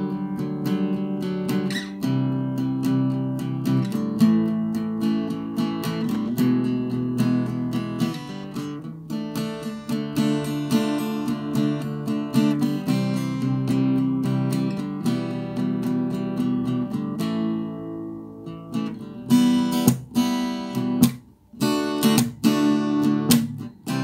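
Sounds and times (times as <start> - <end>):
acoustic guitar music: 0.0 - 24.0.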